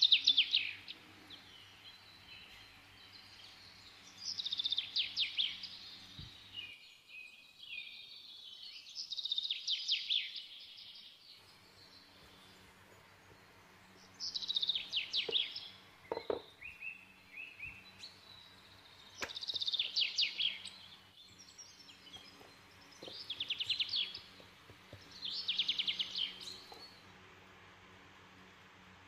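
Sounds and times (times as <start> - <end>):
bird singing chirping trills: 0.0 - 29.0
soft knocks: 16.1 - 16.5.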